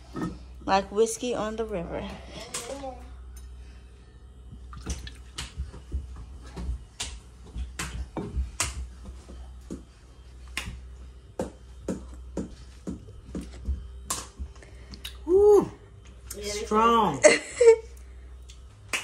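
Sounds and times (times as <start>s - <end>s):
low bass: 0.0s - 19.0s
finger snaps beat: 6.9s - 7.2s, 8.6s - 8.9s, 10.5s - 10.8s, 18.5s - 19.0s.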